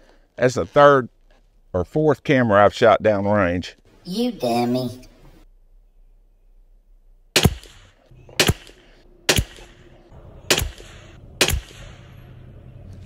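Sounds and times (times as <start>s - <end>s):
rifle shots with echo: 7.4s - 12.2s.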